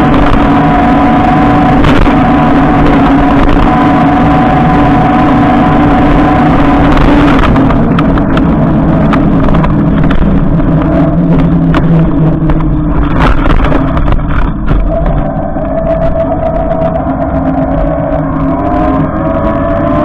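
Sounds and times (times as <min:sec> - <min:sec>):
electric motor whine: 0:00.0 - 0:20.0
sharp clicks and knocks: 0:06.7 - 0:15.3.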